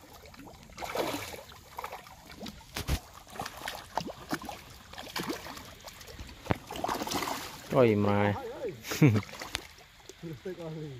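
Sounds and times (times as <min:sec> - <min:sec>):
water lapping and splashing: 0:00.0 - 0:10.9.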